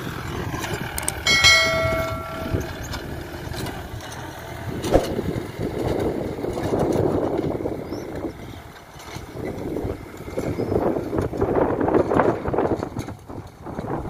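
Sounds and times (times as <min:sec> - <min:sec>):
tractor diesel engine under load: 0:00.0 - 0:14.0
sharp click: 0:01.0 - 0:01.3
bell-like chime: 0:01.0 - 0:03.1.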